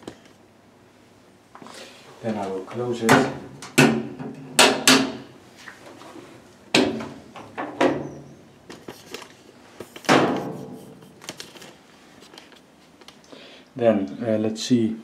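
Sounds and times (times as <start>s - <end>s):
washing machine lid knocks and clunks: 3.1s - 5.2s.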